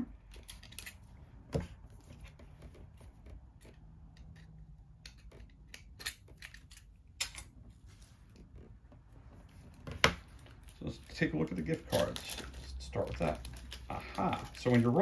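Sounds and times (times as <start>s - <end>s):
packaging rustling: 9.5s - 15.0s.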